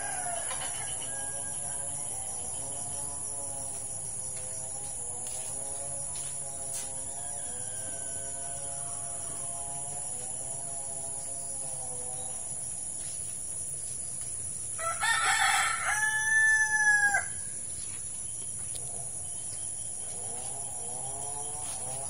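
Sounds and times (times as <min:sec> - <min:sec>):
rooster crowing: 0:00.0 - 0:02.5, 0:07.1 - 0:09.3, 0:14.8 - 0:17.5.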